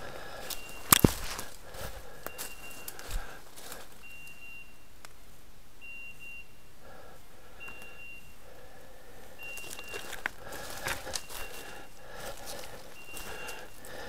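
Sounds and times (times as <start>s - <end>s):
dog collar beeping: 9.4s - 10.3s, 10.9s - 12.0s.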